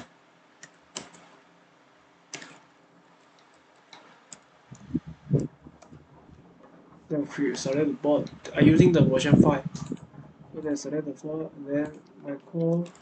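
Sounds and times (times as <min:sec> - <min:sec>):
computer keys clicking: 0:00.6 - 0:01.4
low thumps: 0:04.7 - 0:12.3.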